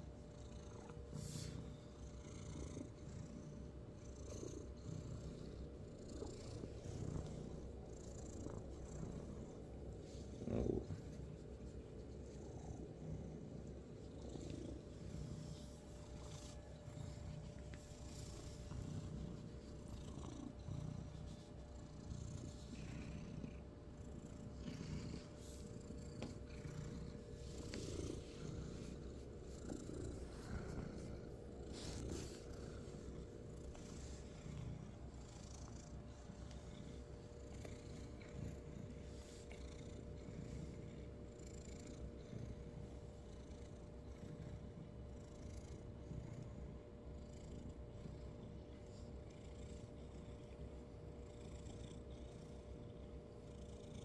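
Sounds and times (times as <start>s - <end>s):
cat purring: 0.0s - 54.0s
rustling of fur: 6.3s - 22.9s, 24.4s - 35.2s.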